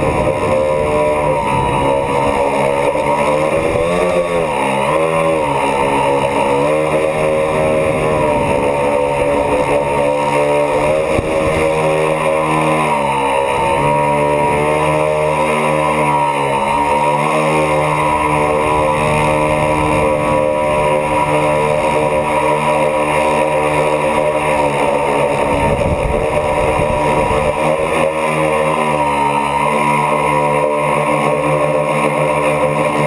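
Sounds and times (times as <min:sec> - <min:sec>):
drone motors and propellers whining: 0:00.0 - 0:33.0.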